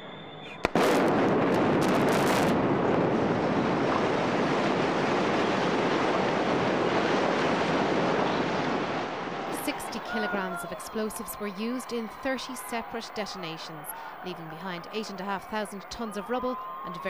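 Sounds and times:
explosive blast: 0:00.6 - 0:09.0
detonation cracks: 0:00.6 - 0:09.2
building collapse rumble: 0:00.8 - 0:09.6.

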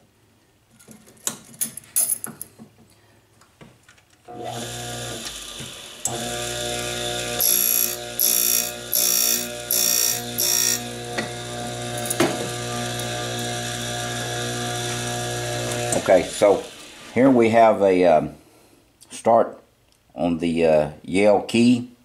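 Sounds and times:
key machine motor humming: 0:04.3 - 0:17.2
cutter grinding key: 0:06.0 - 0:16.1.

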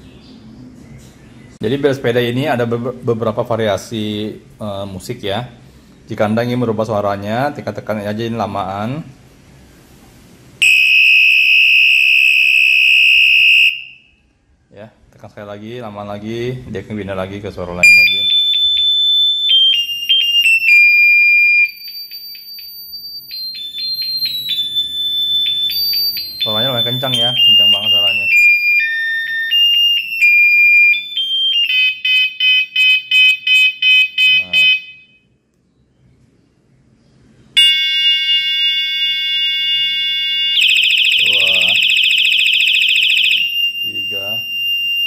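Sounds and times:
electronic bicycle bell siren: 0:10.6 - 0:14.2, 0:17.8 - 0:35.3, 0:37.6 - 0:45.0.

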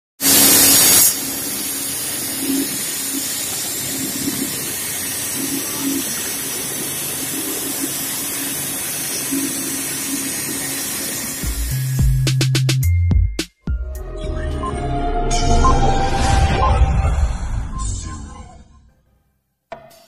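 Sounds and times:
machinery hissing rush: 0:00.2 - 0:12.0.

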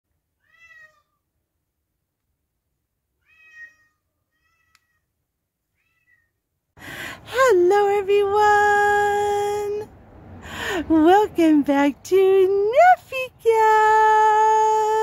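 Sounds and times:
cat meowing: 0:00.4 - 0:01.2, 0:03.2 - 0:05.1, 0:05.7 - 0:06.4.

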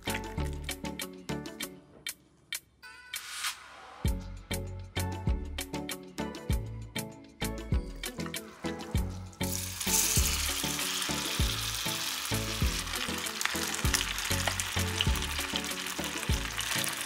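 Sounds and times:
background music with steady beat: 0:00.0 - 0:17.0
food sizzling in oil: 0:08.4 - 0:17.0.

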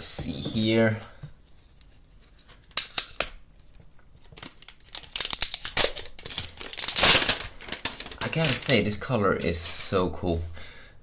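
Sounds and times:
plastic film peeling crackles: 0:01.8 - 0:09.6.

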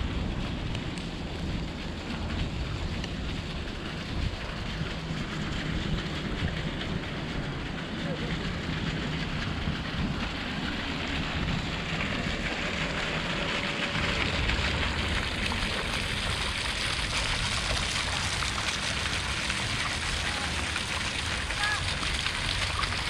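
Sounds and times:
fountain water splashing: 0:00.0 - 0:23.0
low rumble: 0:00.0 - 0:23.0.

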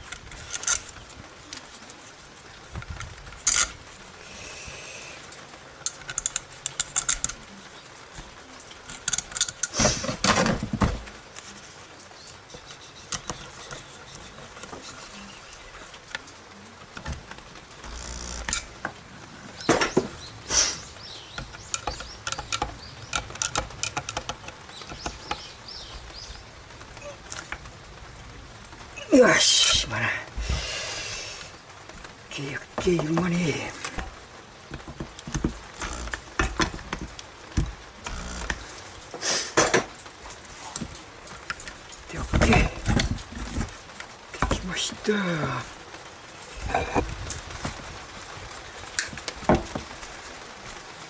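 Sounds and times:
metal parts clattering: 0:03.4 - 0:03.8, 0:05.8 - 0:07.5, 0:08.6 - 0:10.8
light metal clicks and taps: 0:05.8 - 0:07.6, 0:21.3 - 0:25.5.

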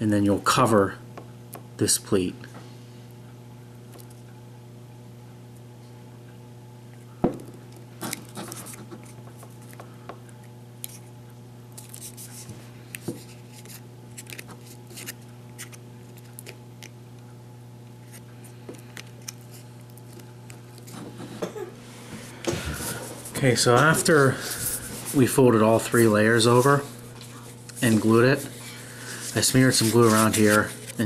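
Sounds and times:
steady low hum: 0:00.0 - 0:31.0
paper rustling: 0:11.8 - 0:16.6, 0:22.6 - 0:31.0.

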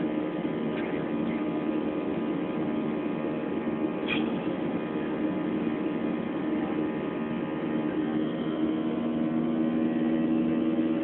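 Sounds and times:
airliner cabin drone: 0:00.0 - 0:11.0.

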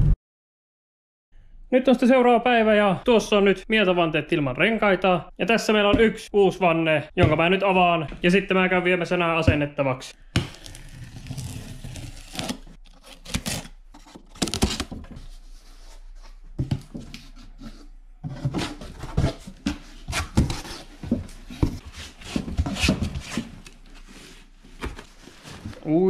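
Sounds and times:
packing tape tearing: 0:10.4 - 0:15.0
cardboard flaps scraping: 0:10.5 - 0:25.8.

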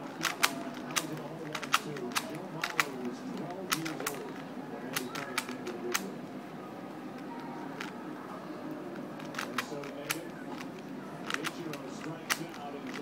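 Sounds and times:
puzzle cube clicking: 0:00.2 - 0:06.1, 0:09.2 - 0:13.0.

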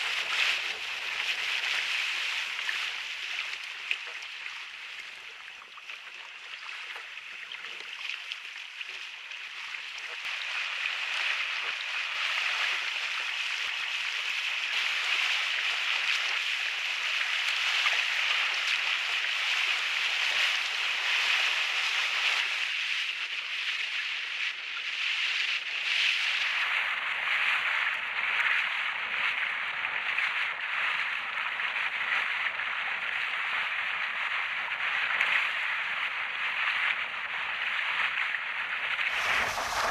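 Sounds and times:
wind rushing over camera: 0:39.1 - 0:39.9.

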